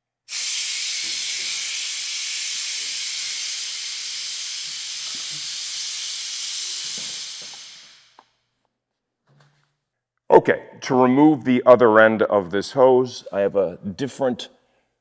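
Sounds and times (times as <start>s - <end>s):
compressed air hissing: 0.2s - 8.2s.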